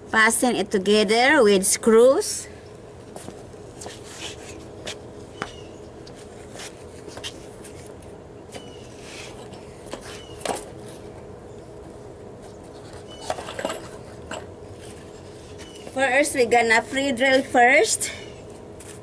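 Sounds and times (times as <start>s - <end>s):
steady low hum: 0.0s - 19.0s
footsteps on patio: 2.9s - 17.5s, 18.4s - 19.0s.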